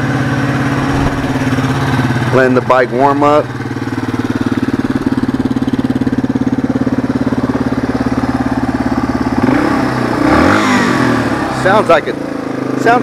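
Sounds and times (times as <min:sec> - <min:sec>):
motorcycle engine idling: 0:00.0 - 0:10.2.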